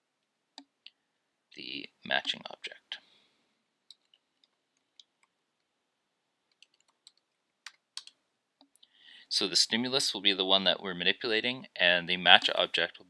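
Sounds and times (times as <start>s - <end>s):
keyboard typing: 3.9s - 5.7s, 6.5s - 8.2s.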